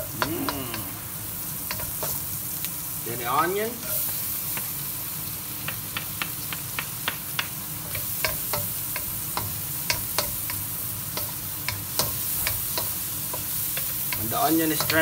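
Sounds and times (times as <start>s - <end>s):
onion and garlic sizzling in oil: 0.0s - 15.0s
wooden spatula tapping pan: 5.6s - 10.6s, 11.2s - 15.0s.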